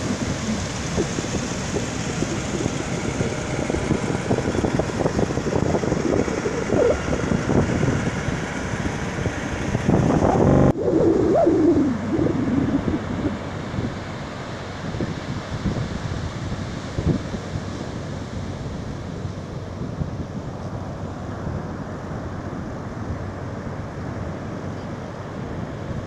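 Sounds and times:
wind buffeting microphone: 0:00.0 - 0:17.8.

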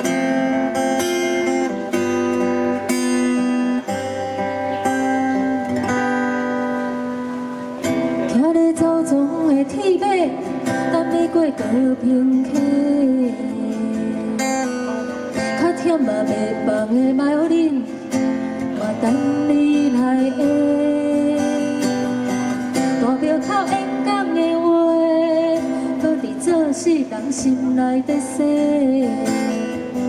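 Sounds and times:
strummed acoustic guitar: 0:00.0 - 0:30.0
woman singing into microphone: 0:08.2 - 0:30.0.

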